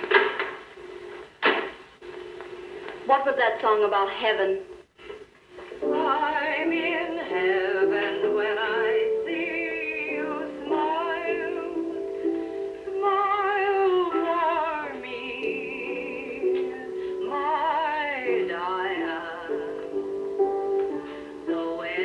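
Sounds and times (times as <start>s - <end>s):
woman singing with vibrato: 5.8s - 20.1s, 21.0s - 22.0s
upright piano accompaniment: 5.8s - 22.0s.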